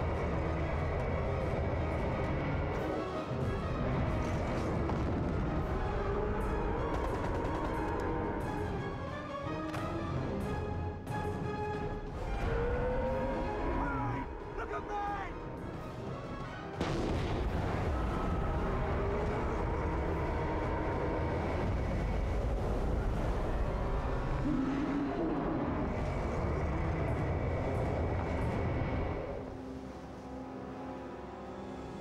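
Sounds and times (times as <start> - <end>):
explosion blast: 16.8 - 20.7
long deep rumble: 16.8 - 29.6.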